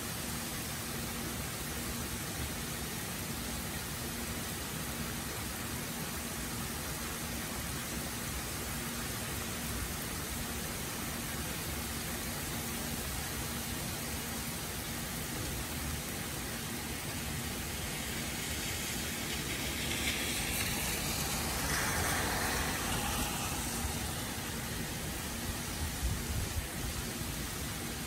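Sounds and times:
heavy rain falling: 0:08.3 - 0:28.0.

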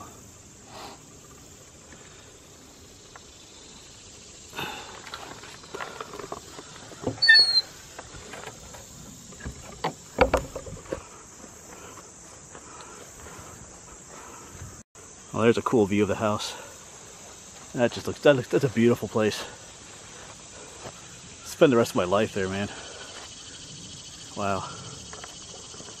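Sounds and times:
crickets and insects chirring: 0:00.0 - 0:26.0
short sharp squeak: 0:07.2 - 0:07.7
wooden door knocks and clatter: 0:09.4 - 0:11.0.

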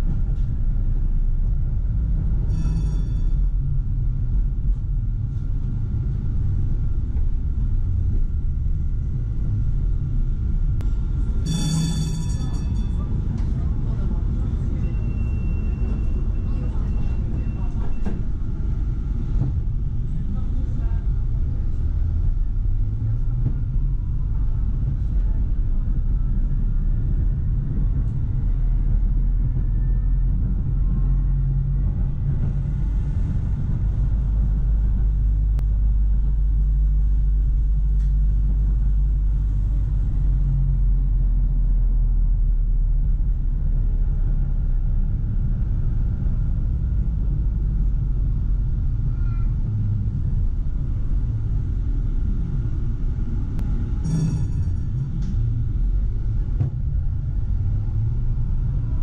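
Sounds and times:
tram rumbling on rails: 0:00.0 - 0:59.0.

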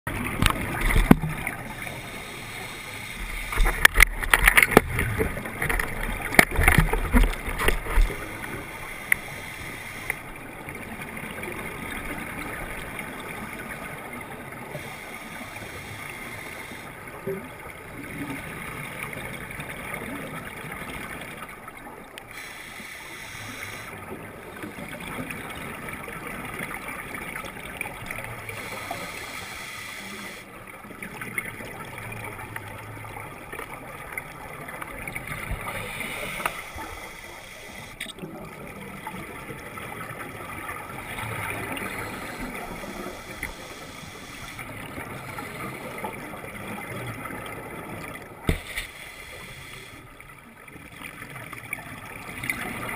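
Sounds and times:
breathing through a regulator: 0:01.7 - 0:03.5, 0:08.4 - 0:10.3, 0:14.7 - 0:17.1, 0:22.3 - 0:24.0, 0:28.4 - 0:30.5, 0:35.5 - 0:38.0, 0:40.9 - 0:46.2, 0:48.7 - 0:50.2
gurgling exhaled bubbles: 0:30.8 - 0:52.9.

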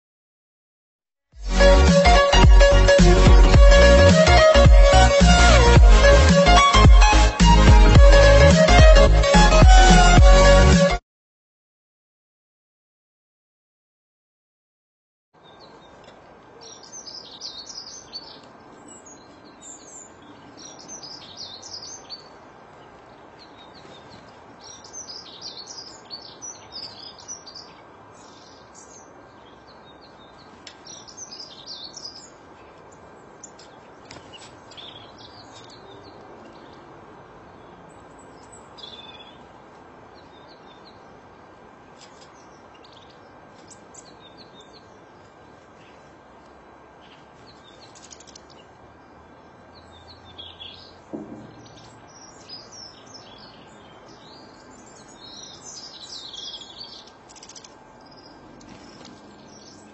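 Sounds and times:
songbirds chirping: 0:15.4 - 0:59.9
steady background hiss: 0:15.4 - 0:59.9.

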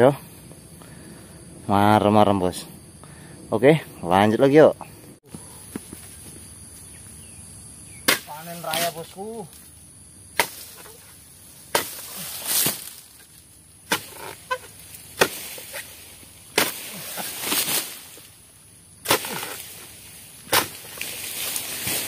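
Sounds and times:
frond rustling through leaves: 0:05.4 - 0:22.0
sickle cutting strikes: 0:08.0 - 0:09.2, 0:10.3 - 0:18.3, 0:19.0 - 0:22.0.

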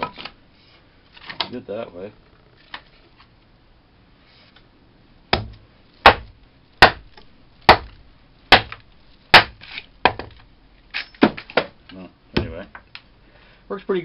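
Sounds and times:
axe chopping wood: 0:05.3 - 0:10.4.

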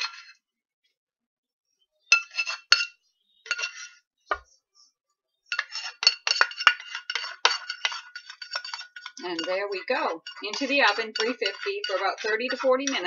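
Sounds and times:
spoon scraping a saucepan: 0:00.0 - 0:00.4, 0:02.1 - 0:04.1, 0:05.5 - 0:13.0.

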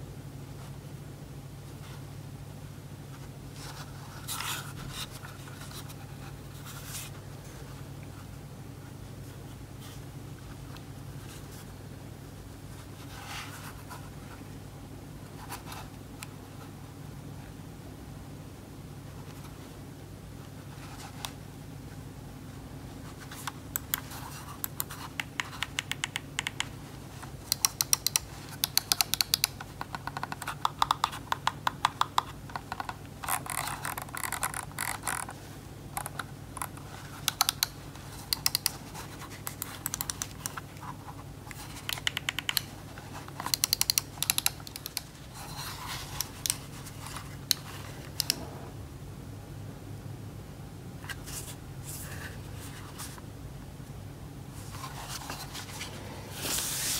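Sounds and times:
mouse buttons clicking: 0:43.4 - 0:45.1.

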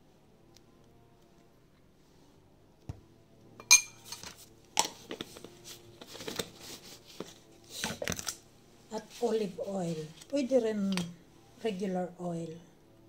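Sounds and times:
glass jars clinking: 0:03.6 - 0:04.3.

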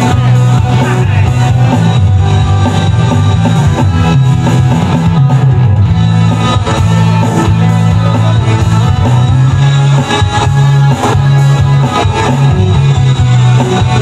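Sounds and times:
electric bass: 0:00.0 - 0:14.0
electric guitar: 0:00.0 - 0:14.0
steady beat: 0:00.0 - 0:14.0.

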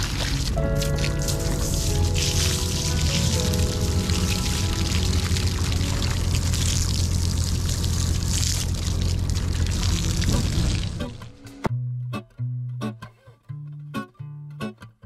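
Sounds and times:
water pouring and splashing: 0:00.0 - 0:11.3
low mechanical hum: 0:01.4 - 0:11.2.

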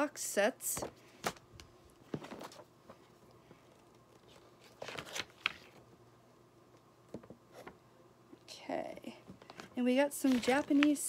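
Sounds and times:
paper rustling: 0:02.1 - 0:03.1, 0:04.1 - 0:05.8, 0:09.5 - 0:11.0.

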